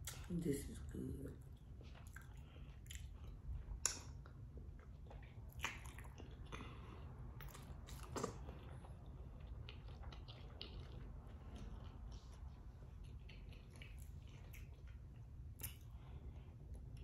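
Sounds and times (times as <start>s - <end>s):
faint low hum: 0.0s - 17.0s
person chewing food: 1.4s - 17.0s
wet mouth clicks and smacks: 2.0s - 6.6s.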